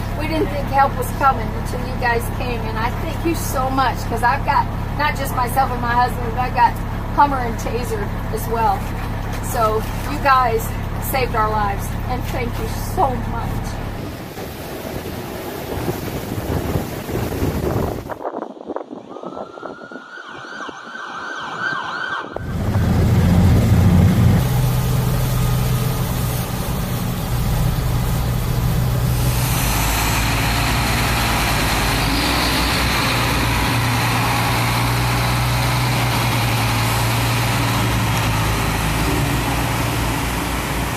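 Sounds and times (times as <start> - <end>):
water spray rushing: 13.4 - 18.2, 22.5 - 40.9
siren rising in pitch: 19.1 - 24.1
vehicle engine running: 22.4 - 40.9.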